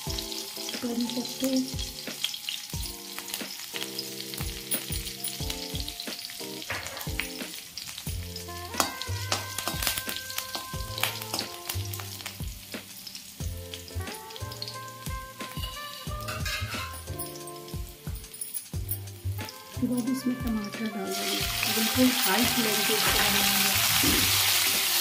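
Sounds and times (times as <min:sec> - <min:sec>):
soft background music: 0:00.0 - 0:25.0
spices sizzling in hot oil: 0:00.0 - 0:25.0
metal spatula scraping pan: 0:08.4 - 0:12.1, 0:14.0 - 0:17.7.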